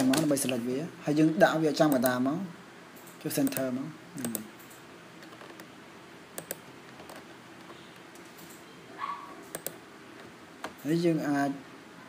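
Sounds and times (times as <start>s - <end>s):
mouse and keyboard clicks: 6.4s - 8.6s, 9.5s - 10.8s.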